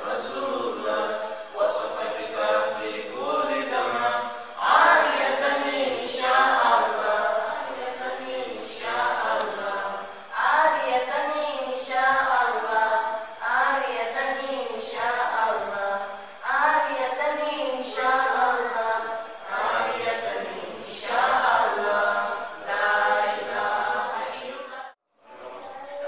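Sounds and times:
crowd chanting: 2.7 - 11.1, 17.8 - 26.0.

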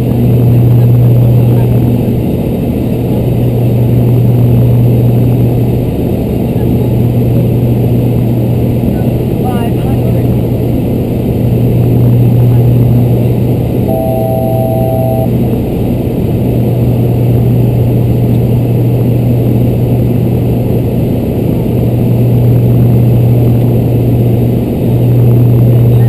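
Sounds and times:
turboprop engines droning: 0.0 - 26.0
two-pitch electronic tone: 13.9 - 15.3.

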